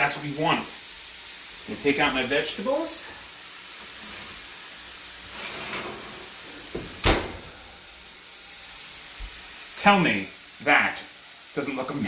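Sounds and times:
food frying in pan: 0.0 - 12.0
oven door clacking shut: 6.7 - 7.6.

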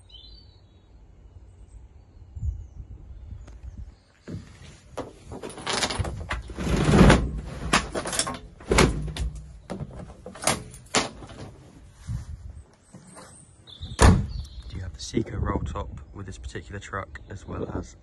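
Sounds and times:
cover sliding along rails: 4.3 - 11.6
truck bed cover clattering: 4.3 - 11.6.

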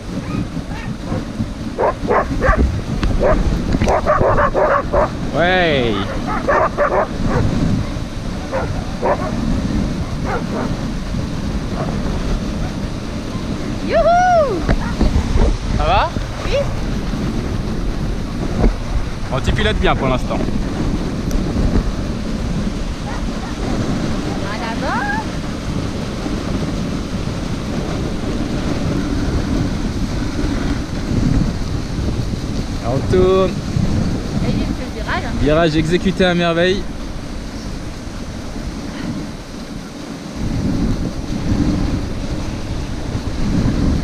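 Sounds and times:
sled rushing over snow: 0.0 - 44.0
wind buffeting microphone: 0.0 - 44.0
sled dogs barking: 0.1 - 5.3, 5.9 - 10.9, 11.7 - 12.8.

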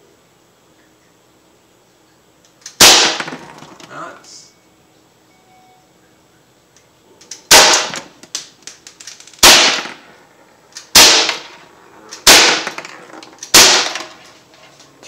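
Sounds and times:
air pistol shots: 2.6 - 3.5, 7.3 - 8.2, 9.4 - 10.1, 10.7 - 14.2.

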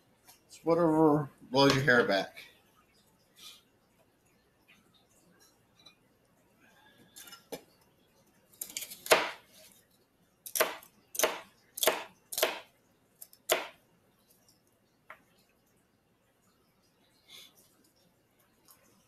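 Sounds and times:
knife chopping on cutting board: 8.7 - 9.4, 10.5 - 12.7, 13.5 - 13.8.

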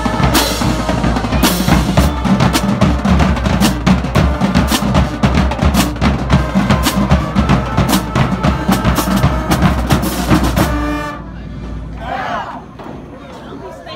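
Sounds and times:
marching drum line: 0.0 - 11.2
brass horns playing: 0.0 - 11.5.

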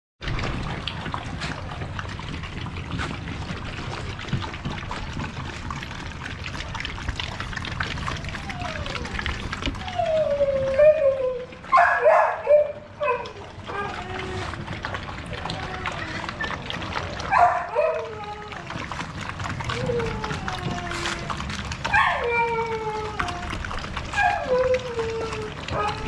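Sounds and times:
puppies lapping water: 0.2 - 26.0
puppy yelps: 8.1 - 14.6, 17.2 - 18.9, 19.6 - 26.0
puppy whining: 8.1 - 14.7, 15.4 - 26.0.

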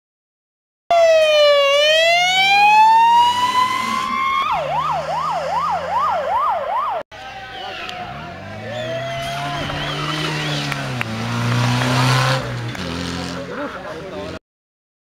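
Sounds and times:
electronic siren wailing and yelping: 0.9 - 7.0.

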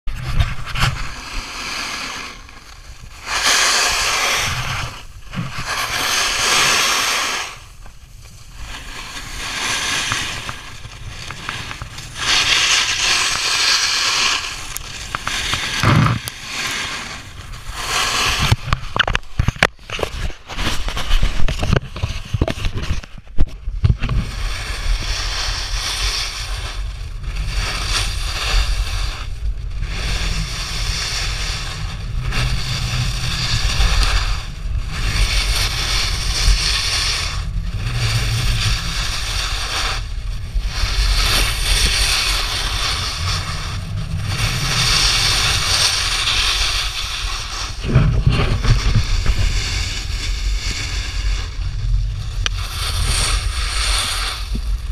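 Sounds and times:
low wind rumble on microphone: 0.0 - 54.9
snowboard scraping on snow: 0.1 - 54.9
sharp crackling clicks: 9.2 - 17.6.

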